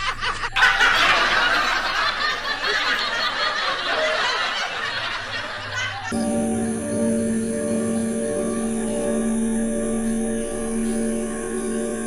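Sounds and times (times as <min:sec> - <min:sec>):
people laughing: 0:00.0 - 0:06.4.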